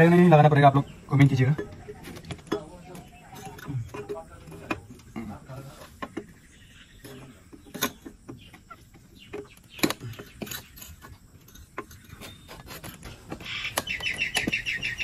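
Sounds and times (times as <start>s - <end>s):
metal parts clicking and clinking: 1.4s - 5.2s, 7.5s - 14.6s.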